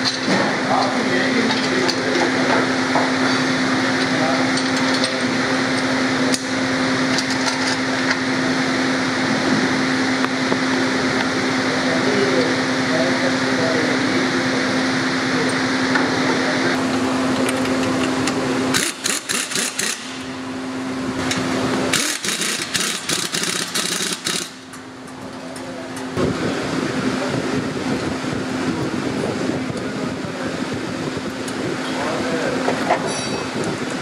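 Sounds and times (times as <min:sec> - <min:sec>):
steady mechanical hum: 0:00.0 - 0:34.0
hand tools clicking and rattling: 0:17.4 - 0:20.1, 0:21.9 - 0:24.8.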